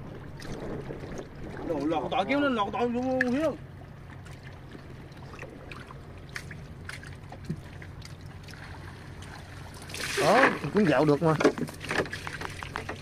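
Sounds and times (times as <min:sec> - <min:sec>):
steady low hum: 0:00.0 - 0:13.0
faint water drips: 0:03.0 - 0:10.9.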